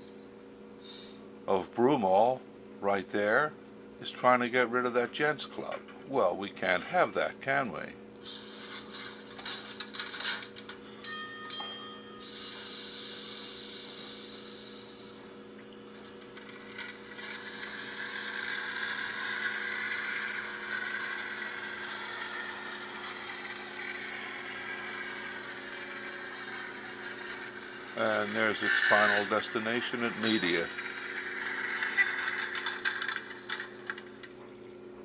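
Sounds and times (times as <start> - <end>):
steady low hum: 0.0 - 35.0
model trolley motor sounds: 16.0 - 34.1.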